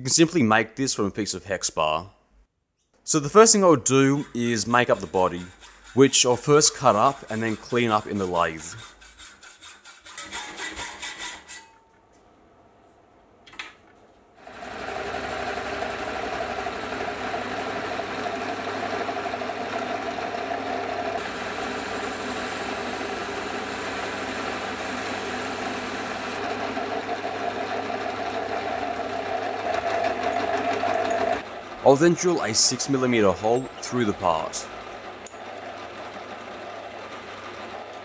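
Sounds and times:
saw blade rasping through steel: 3.6s - 11.8s
metal lathe humming: 3.8s - 9.3s, 14.4s - 38.0s.

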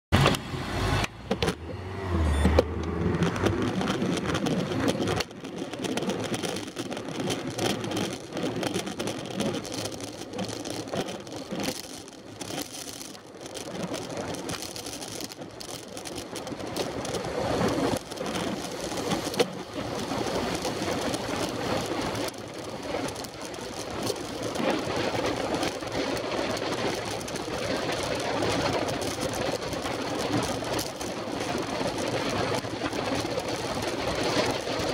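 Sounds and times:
road noise: 0.1s - 34.9s
car traffic close by: 0.2s - 4.4s
wind buffeting microphone: 1.3s - 34.9s.

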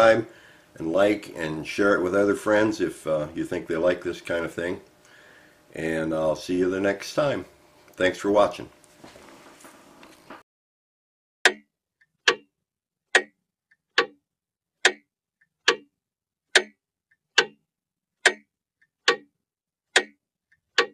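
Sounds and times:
mechanical clock ticking: 11.5s - 12.5s, 13.1s - 14.2s, 14.8s - 15.9s, 16.5s - 17.6s, 18.2s - 19.3s, 19.9s - 20.9s.

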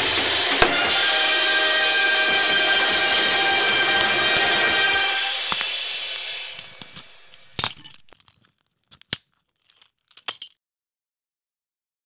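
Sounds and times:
glass shards clinking: 3.9s - 10.6s
glass shattering: 4.4s - 10.6s.

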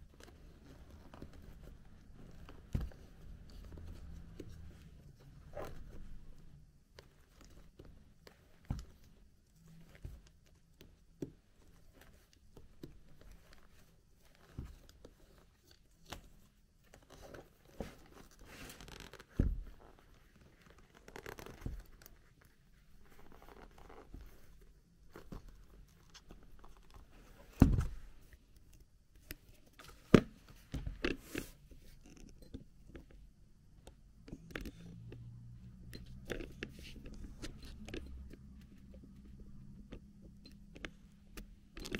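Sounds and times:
leather and paper rustling: 0.1s - 28.4s.

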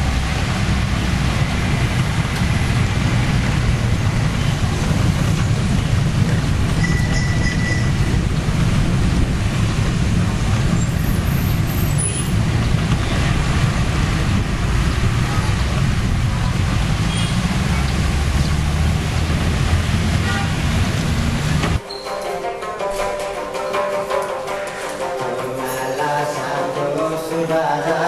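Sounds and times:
street traffic rumble: 0.0s - 21.9s, 22.6s - 28.0s
rickshaw riding noise: 0.0s - 28.0s.

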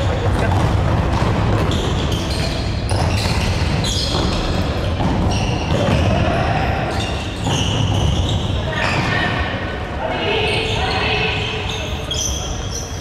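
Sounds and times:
shoes squeaking on floor: 0.0s - 9.4s, 10.3s - 13.0s
ball bouncing and kicked: 0.3s - 2.2s, 2.9s - 6.4s.

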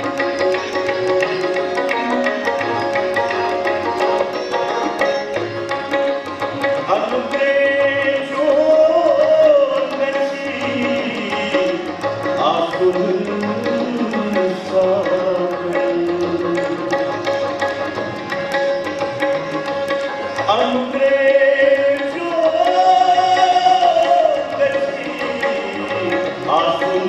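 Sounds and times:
tabla beat: 0.0s - 27.0s
man singing: 6.8s - 17.2s, 20.4s - 27.0s.

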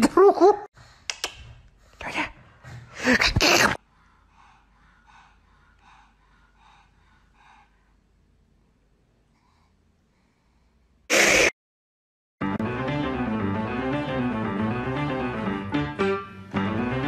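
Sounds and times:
dog breathing puffs: 0.8s - 8.1s.

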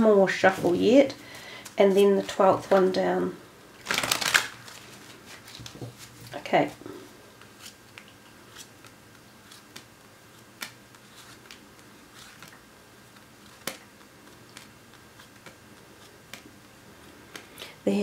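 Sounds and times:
cards clicking and tapping: 7.4s - 12.6s, 13.5s - 16.5s.

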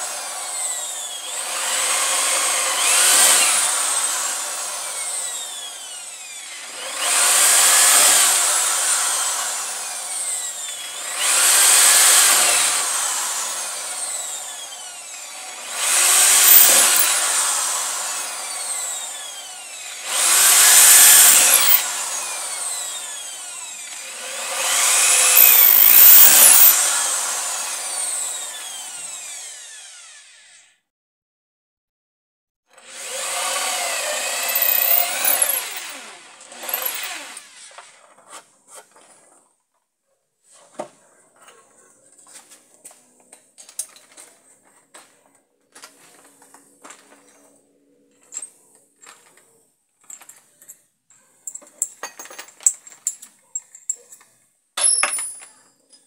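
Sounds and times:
electric drill boring through wood: 0.0s - 30.8s, 32.7s - 38.2s.

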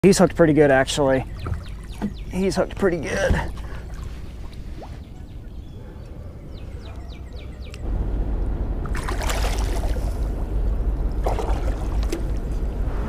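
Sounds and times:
faint bird chirps: 1.2s - 2.8s, 3.5s - 7.8s.

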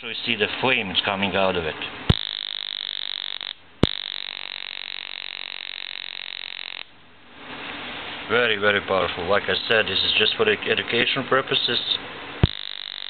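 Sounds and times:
electric arc buzzing with whine: 1.5s - 7.1s, 12.4s - 13.0s
sharp electric snap: 2.1s - 6.9s, 12.4s - 13.0s.

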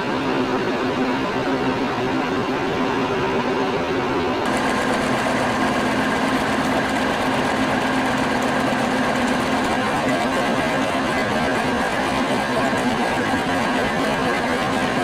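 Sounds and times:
milling machine cutting metal: 4.5s - 15.0s.

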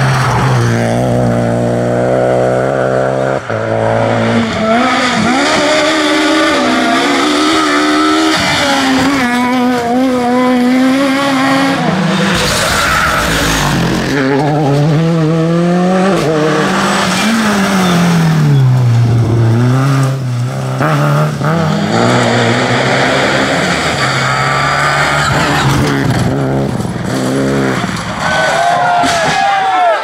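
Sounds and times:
rally car engines revving: 0.0s - 29.2s.

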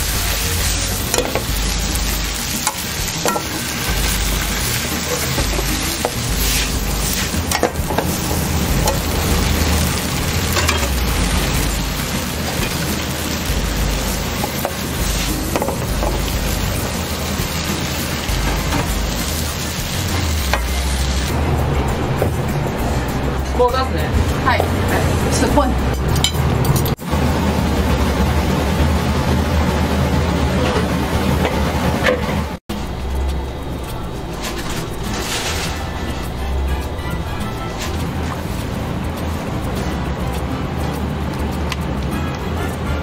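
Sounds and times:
food sizzling in a pan: 0.0s - 21.4s.

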